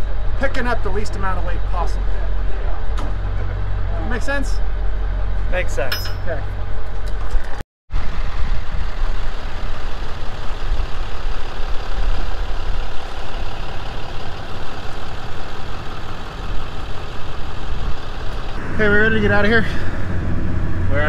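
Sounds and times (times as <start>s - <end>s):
truck engine running: 6.2s - 21.0s.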